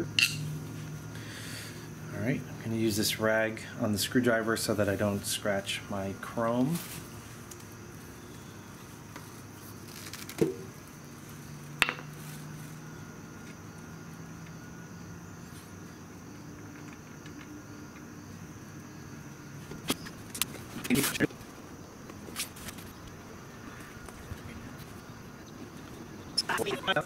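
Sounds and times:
faint high-pitched chirring: 0:00.0 - 0:02.7
sharp metallic clicks: 0:00.1 - 0:00.4.

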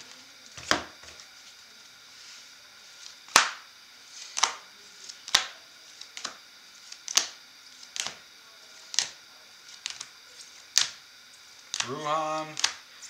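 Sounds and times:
trading card snapping: 0:03.3 - 0:03.6, 0:04.3 - 0:04.6, 0:05.2 - 0:05.5, 0:11.7 - 0:12.8.

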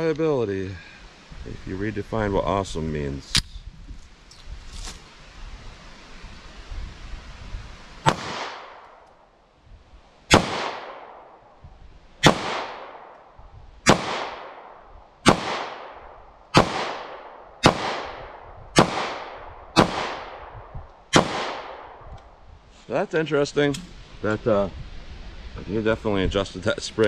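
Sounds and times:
pistol shots with echo: 0:08.1 - 0:08.8, 0:10.3 - 0:11.3, 0:12.2 - 0:13.1, 0:13.8 - 0:22.0.

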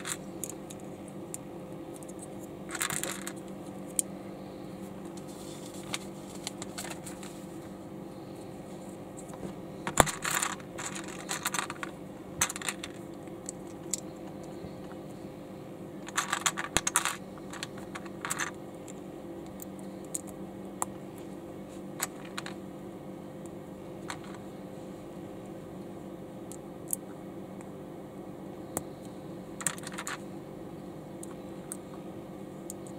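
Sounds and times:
plastic bricks rattling: 0:02.7 - 0:03.4, 0:09.9 - 0:13.0.

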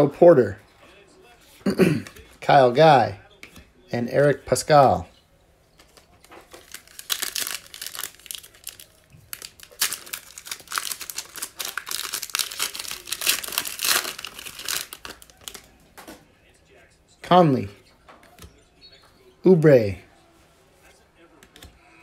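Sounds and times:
foil wrapper crinkling and tearing: 0:06.2 - 0:15.7.

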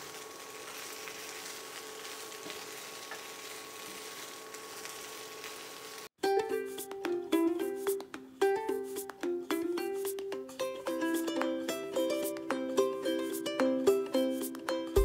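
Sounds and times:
chicken sizzling in a wok: 0:00.0 - 0:06.1
plucked-string music: 0:06.2 - 0:15.0.

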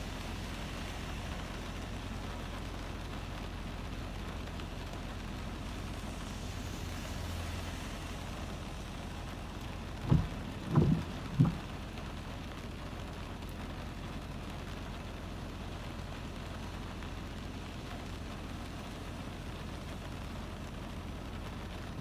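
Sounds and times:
low steady rumble: 0:00.0 - 0:22.0
rain on a car heard from inside: 0:00.0 - 0:22.0
dull thumps: 0:10.0 - 0:11.7.

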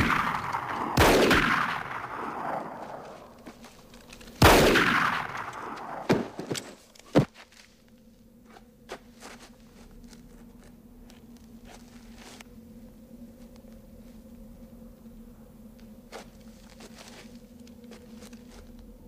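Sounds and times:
loud gunshot with echo: 0:00.0 - 0:02.8, 0:04.4 - 0:06.4.

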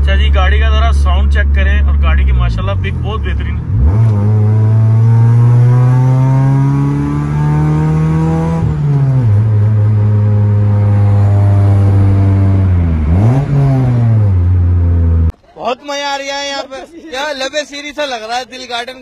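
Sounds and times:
car engine accelerating: 0:00.0 - 0:15.3.

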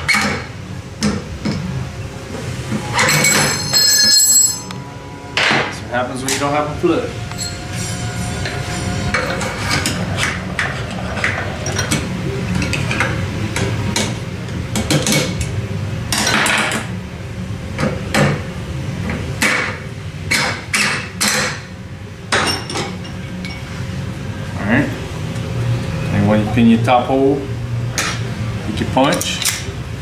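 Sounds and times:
low shop hum: 0:00.0 - 0:30.0.

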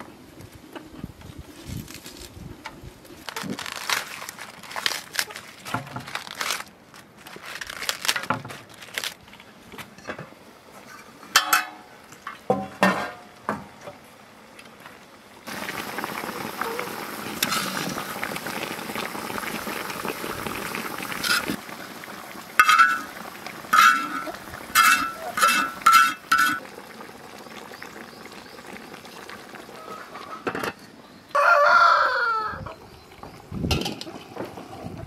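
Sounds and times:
pot steaming hiss: 0:15.4 - 0:30.4
rooster crowing: 0:31.3 - 0:32.8.

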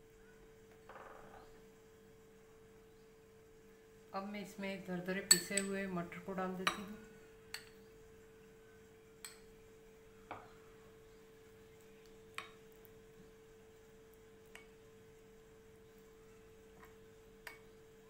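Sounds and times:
faint steady hum: 0:00.0 - 0:18.0
spoon clicking against bowl: 0:05.3 - 0:05.7.

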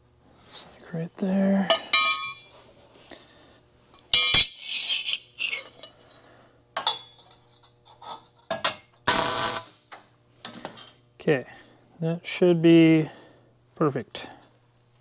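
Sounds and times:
mig welding burst: 0:09.1 - 0:09.8.

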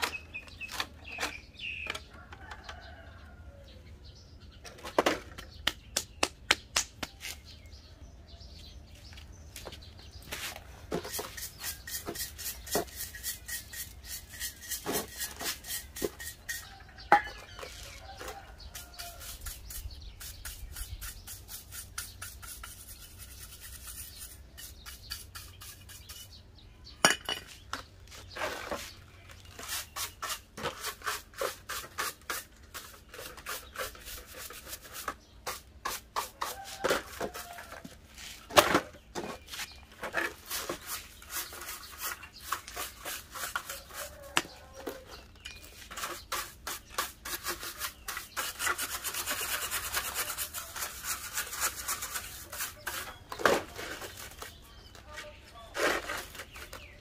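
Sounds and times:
brush scrubbing metal: 0:10.4 - 0:26.4, 0:28.8 - 0:38.3, 0:39.6 - 0:44.8, 0:45.7 - 0:54.6.

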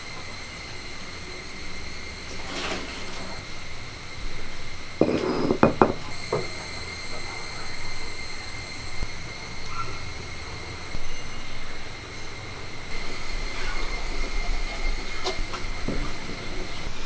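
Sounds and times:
steady high-pitched drone: 0:00.0 - 0:17.0
hands scraping nuts on stone: 0:05.0 - 0:06.1
knocks: 0:05.0 - 0:06.5.

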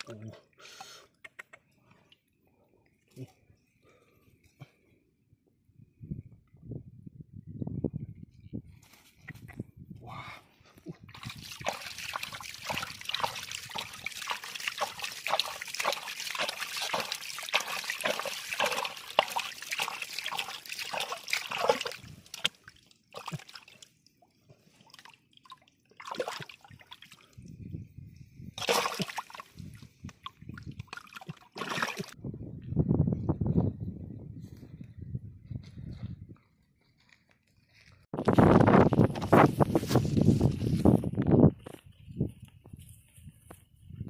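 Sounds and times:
water splashing and trickling: 0:11.1 - 0:27.8, 0:28.6 - 0:32.2.

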